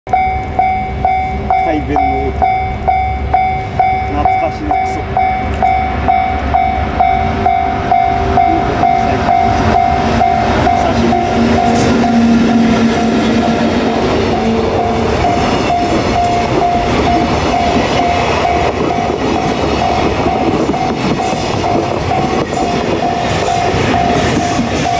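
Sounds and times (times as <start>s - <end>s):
level crossing bell ringing: 0.1s - 12.2s, 14.3s - 19.2s, 23.0s - 24.9s
train wagons rumbling over rails: 0.1s - 24.9s.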